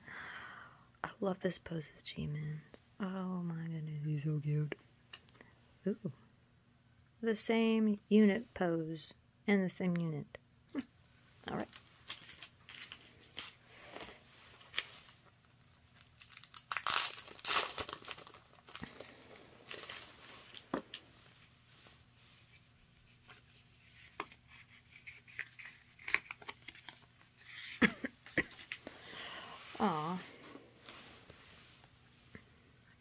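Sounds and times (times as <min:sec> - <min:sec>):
packaging rustling and tearing: 0:11.6 - 0:21.1, 0:24.1 - 0:27.8.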